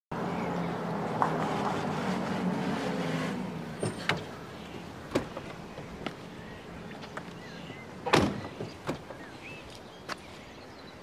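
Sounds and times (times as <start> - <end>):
car engine humming: 0.1 - 10.0
car door unlatching and opening: 3.0 - 6.2, 7.0 - 9.2.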